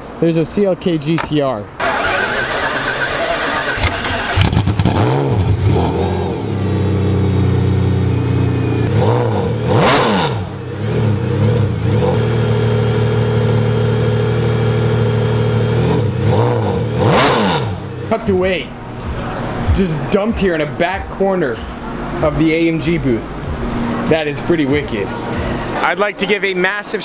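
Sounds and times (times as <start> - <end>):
engine throttle blips: 1.8 - 20.6
car engine idling: 5.9 - 8.8.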